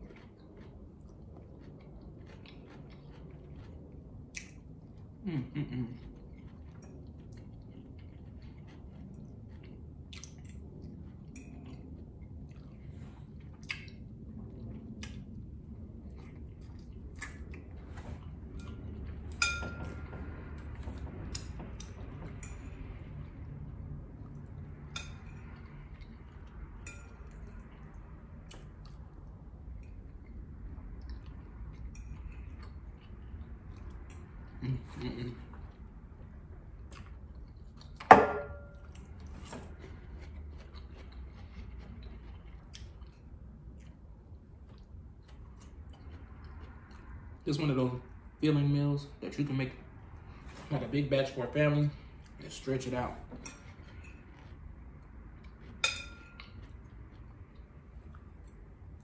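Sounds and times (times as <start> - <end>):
wet eating sounds: 0.0 - 19.4, 23.2 - 38.1, 38.7 - 47.5
person chewing: 0.0 - 47.4, 53.3 - 59.0
fork clinking against ceramic bowl: 19.4 - 20.1, 55.7 - 56.6.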